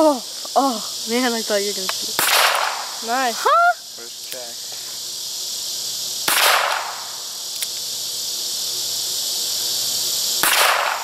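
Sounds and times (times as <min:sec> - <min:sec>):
insects droning: 0:00.0 - 0:11.0
handgun shots echoing: 0:10.4 - 0:11.0.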